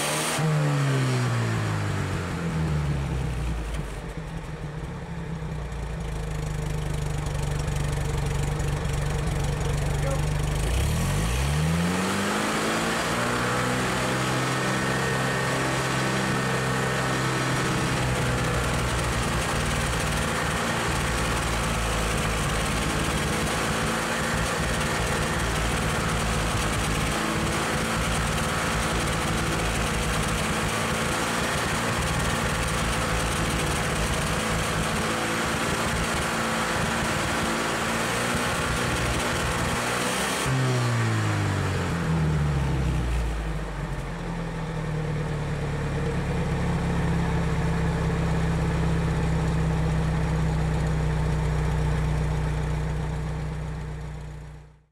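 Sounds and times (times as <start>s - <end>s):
engine idling and revving: 0.0s - 54.9s.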